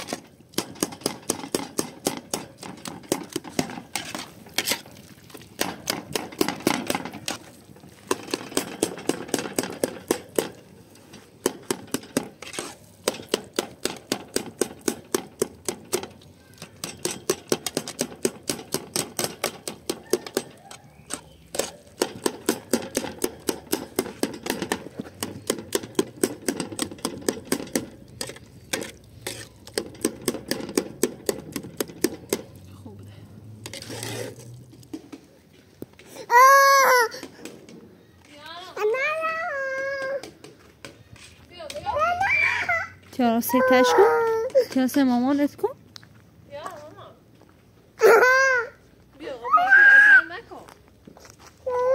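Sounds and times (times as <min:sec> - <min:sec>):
metal ladle scraping a pot: 0:00.8 - 0:05.0, 0:05.6 - 0:13.6, 0:19.2 - 0:32.5, 0:33.6 - 0:35.0.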